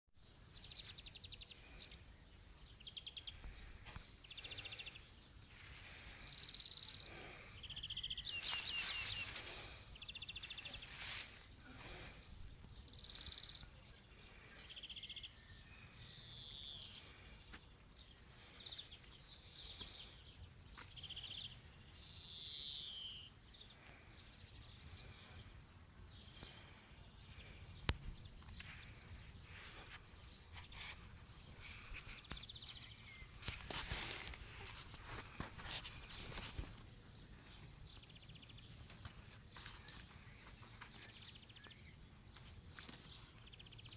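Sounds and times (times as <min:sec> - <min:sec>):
songbirds chirping and trilling: 0:00.2 - 0:43.9
rustling on microphone: 0:08.1 - 0:12.3, 0:27.9 - 0:37.0.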